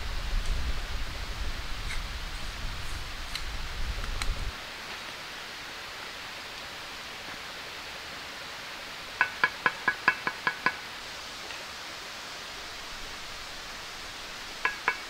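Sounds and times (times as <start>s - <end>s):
wind rumble on microphone: 0.0s - 4.6s
steady hiss: 0.0s - 15.0s.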